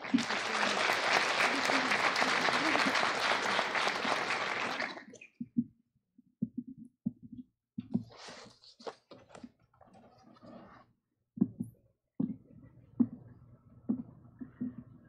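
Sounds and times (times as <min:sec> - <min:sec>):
applause: 0:00.0 - 0:05.2.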